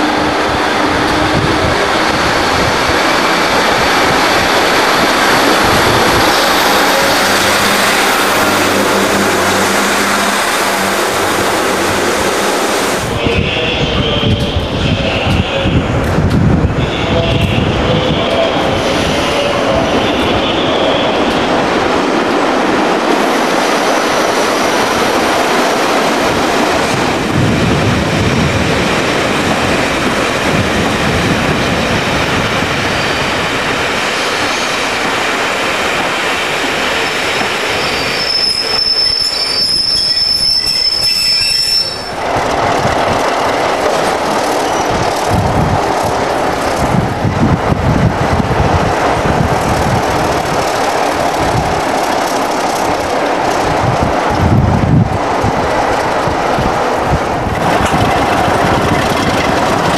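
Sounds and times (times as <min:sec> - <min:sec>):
train wheels rumbling on rails: 0:00.0 - 0:59.9
high-pitched wheel squeal: 0:37.7 - 0:42.2.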